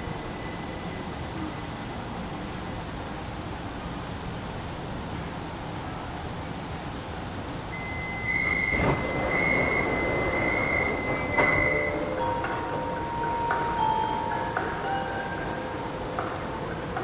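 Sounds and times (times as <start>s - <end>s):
metro train rumble: 0.0s - 17.0s
train doors unlocking and sliding: 7.7s - 17.0s
door warning beeping: 7.8s - 12.5s.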